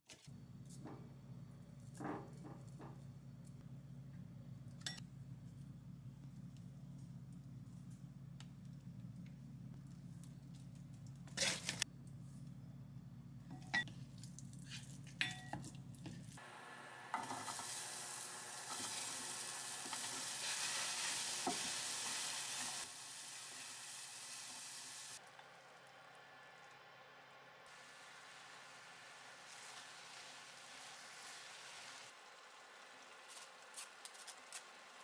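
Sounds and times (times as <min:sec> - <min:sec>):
vegetables sizzling in pot: 0:16.4 - 0:25.2, 0:27.7 - 0:35.0.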